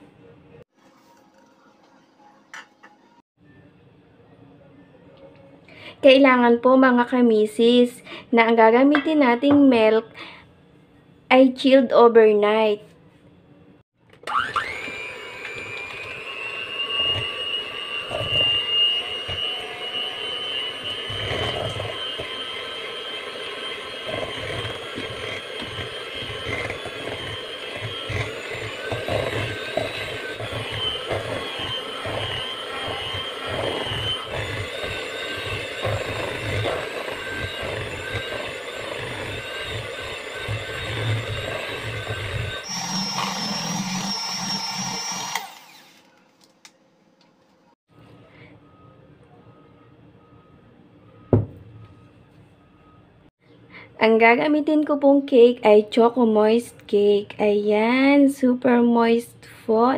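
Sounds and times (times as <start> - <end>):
electric hand mixer whine: 14.2 - 46.1.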